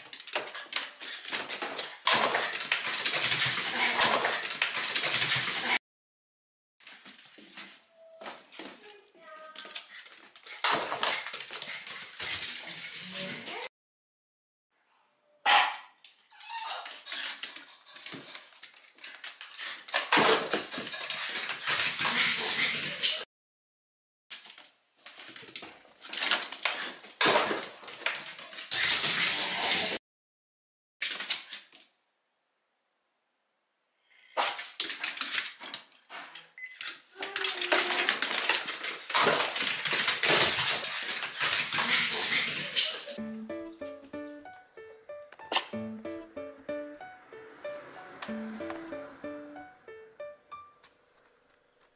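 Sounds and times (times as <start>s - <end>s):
small dog barking: 15.4s - 15.9s.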